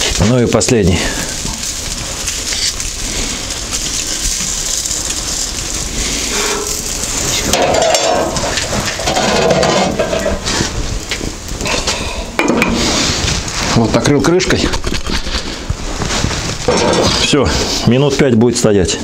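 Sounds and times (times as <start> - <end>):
meat sizzling in a pot: 0.0 - 18.4
metal skewer scraping: 6.3 - 8.2.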